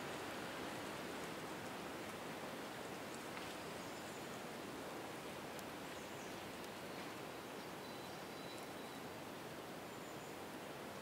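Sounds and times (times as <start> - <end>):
wind rustling leaves: 0.0 - 11.0.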